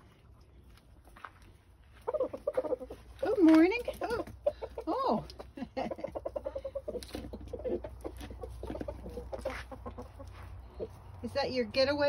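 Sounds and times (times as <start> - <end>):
chickens clucking: 1.8 - 11.2.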